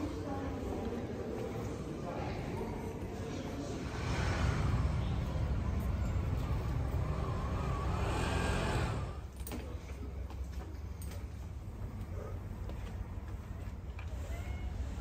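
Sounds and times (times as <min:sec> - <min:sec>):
quiet street sound: 0:00.0 - 0:15.0
vehicle engine and tyre rumble: 0:03.6 - 0:09.4.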